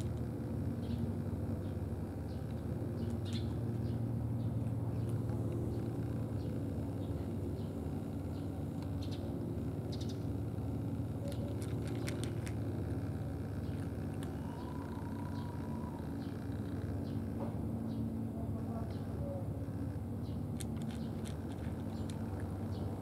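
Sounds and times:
low mechanical hum: 0.0s - 23.0s
cat chewing food clicks: 11.3s - 12.7s, 20.6s - 22.6s.

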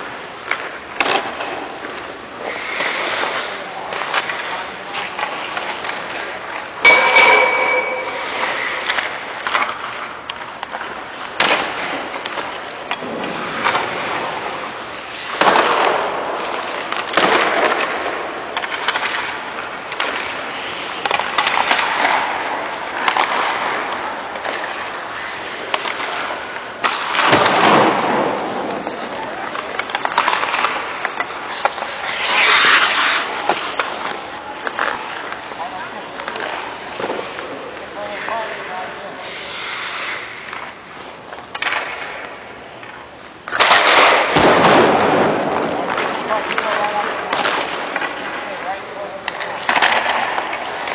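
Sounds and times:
skate blades scraping ice: 0.0s - 42.3s, 42.9s - 50.9s
stick striking puck: 6.8s - 10.0s, 15.3s - 17.9s, 23.0s - 23.8s, 25.6s - 29.0s, 49.3s - 50.9s.

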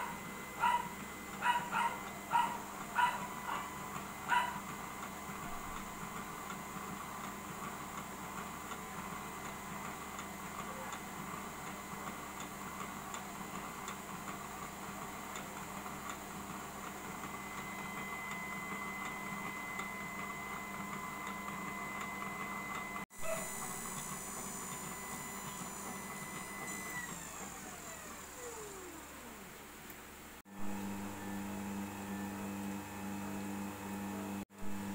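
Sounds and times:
oil press machine humming: 0.0s - 29.7s, 30.5s - 34.9s.

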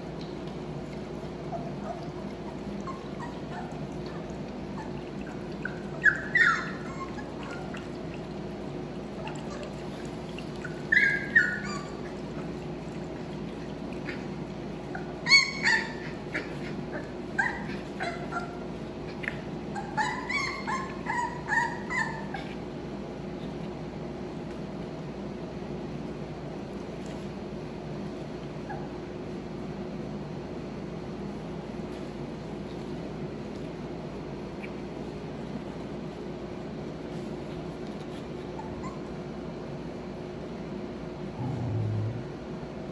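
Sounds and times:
puppies whimpering and yipping: 1.2s - 23.6s, 28.6s - 29.4s, 37.2s - 39.9s
low hum: 41.3s - 42.9s.

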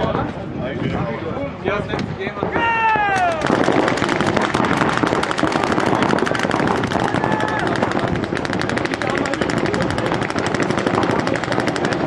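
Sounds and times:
paintball markers firing: 3.1s - 12.0s.

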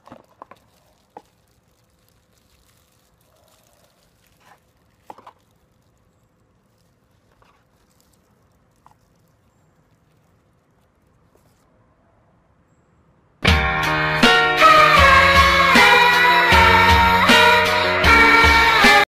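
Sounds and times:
plastic packaging crinkling: 0.0s - 11.7s.

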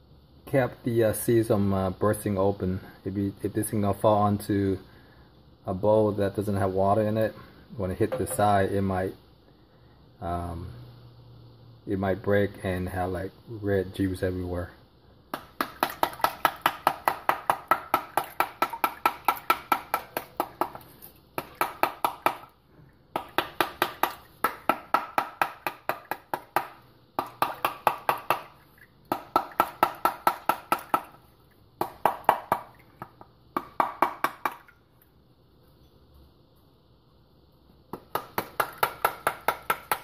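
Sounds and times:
wooden spoon knocking on fruit: 15.3s - 22.5s, 23.2s - 28.5s, 29.1s - 31.2s, 31.8s - 34.6s.

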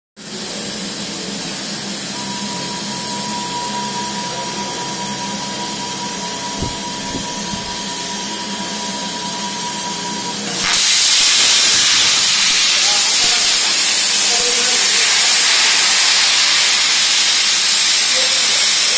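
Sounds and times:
plasma arc piercing steel: 6.6s - 7.9s, 10.5s - 18.9s
plasma cutter air hissing: 6.6s - 7.9s, 10.6s - 18.9s.

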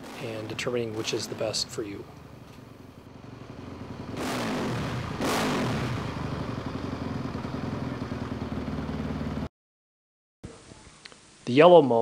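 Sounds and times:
motorcycle engine revving and idling: 0.3s - 9.5s.

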